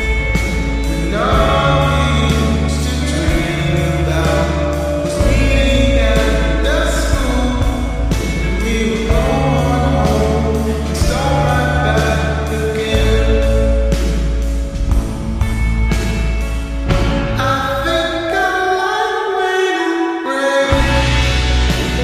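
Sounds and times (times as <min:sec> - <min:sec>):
deep bass notes: 0:00.0 - 0:18.4, 0:20.7 - 0:22.0
drums: 0:00.0 - 0:18.5, 0:20.7 - 0:22.0
pop song with vocals: 0:00.0 - 0:22.0.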